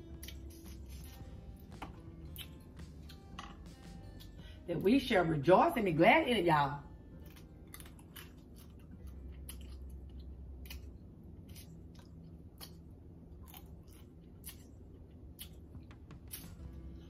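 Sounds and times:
chewing: 0.2 - 1.3, 2.2 - 3.6, 7.2 - 12.8, 13.4 - 15.7.

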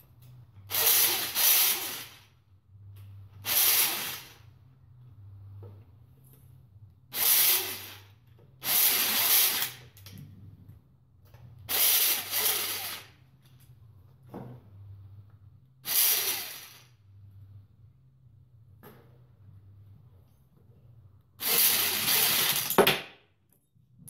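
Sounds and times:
pneumatic tool driving bolts: 0.7 - 2.1.

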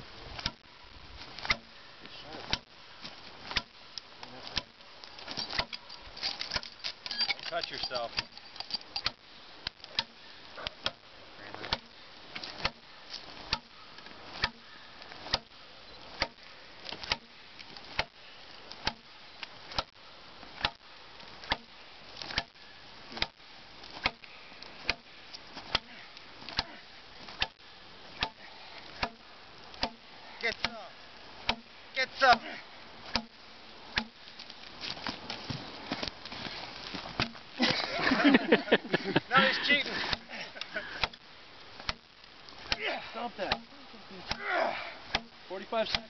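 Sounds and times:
hatchet chopping into log: 31.5 - 31.7, 33.1 - 33.4, 34.0 - 34.2, 37.2 - 37.4, 43.5 - 43.7, 45.1 - 46.0.

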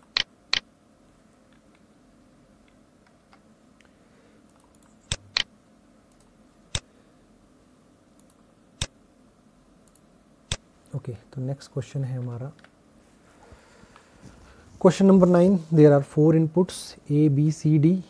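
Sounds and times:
faint steady hum: 0.0 - 18.0
computer mouse clicking: 4.5 - 5.5, 6.1 - 6.9, 8.2 - 8.9, 9.8 - 10.6.

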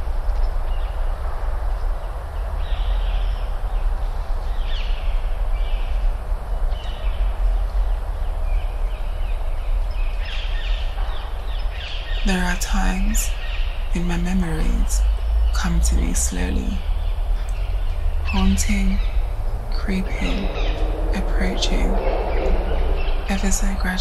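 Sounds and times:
steady low rumble: 0.0 - 24.0
birds chirping: 6.7 - 24.0.

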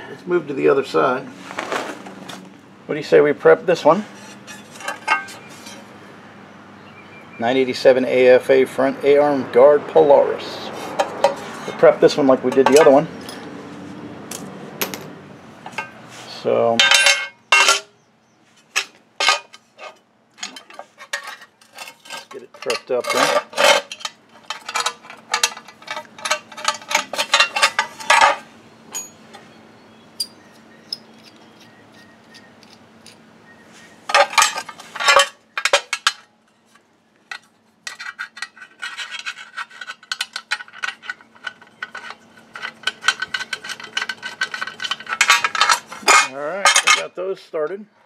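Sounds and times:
metal parts clinking and rattling: 4.2 - 5.9, 11.0 - 13.5, 14.3 - 16.0, 16.7 - 17.9, 18.7 - 29.4, 34.1 - 47.1.

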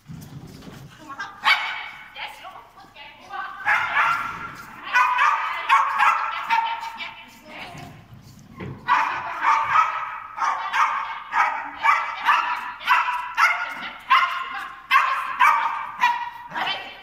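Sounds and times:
dog barking high-pitched: 1.2 - 2.1, 3.6 - 7.0, 8.8 - 16.7.

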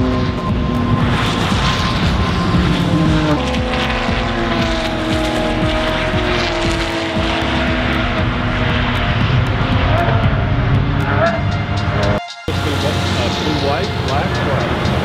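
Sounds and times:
race car engines passing: 0.0 - 15.0
steady rushing noise: 0.0 - 15.0.

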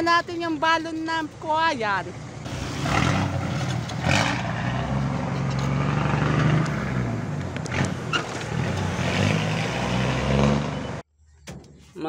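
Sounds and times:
truck engine pulling away: 2.5 - 11.0.

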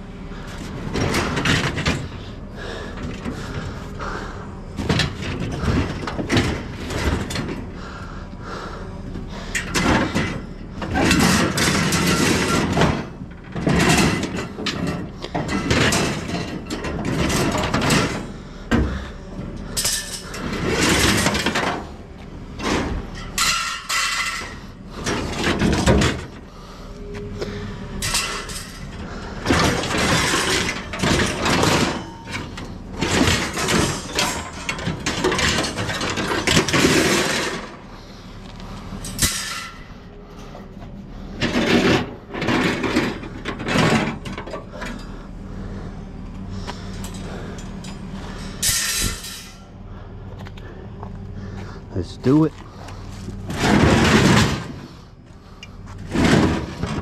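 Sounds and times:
metal racks clattering in truck bed: 0.6 - 4.2, 4.8 - 7.7, 9.3 - 26.8, 27.4 - 45.8, 46.5 - 49.7, 52.0 - 57.0.

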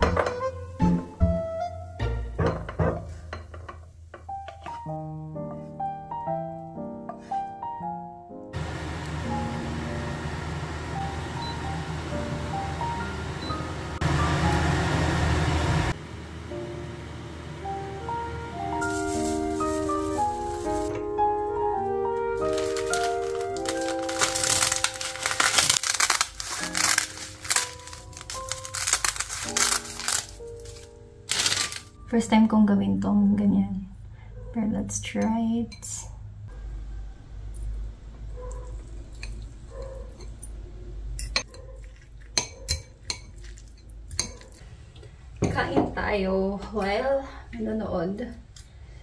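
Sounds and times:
background music: 0.0 - 3.1, 4.2 - 15.1, 16.5 - 33.5
seaweed sheets crackling: 18.8 - 21.0, 22.4 - 32.0
spoon and fork clinking on bowl: 41.2 - 44.5.

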